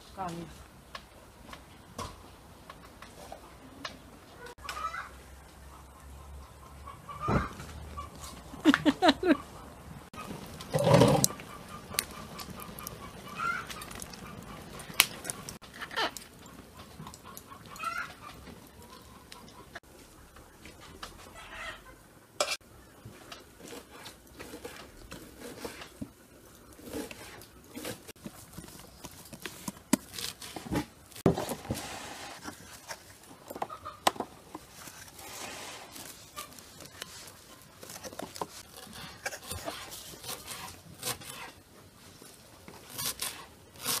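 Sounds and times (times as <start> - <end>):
chickens clucking: 4.4 - 19.8, 33.5 - 34.5.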